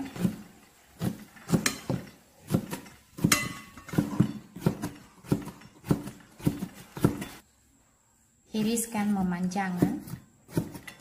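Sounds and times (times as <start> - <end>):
cleaver chopping on cutting board: 9.8 - 11.0.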